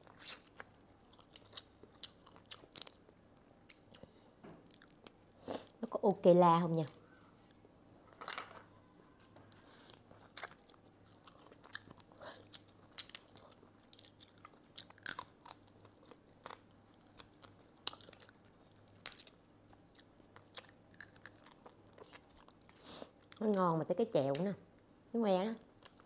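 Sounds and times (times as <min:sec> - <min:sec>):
chewing: 0:00.0 - 0:03.1, 0:09.2 - 0:23.4.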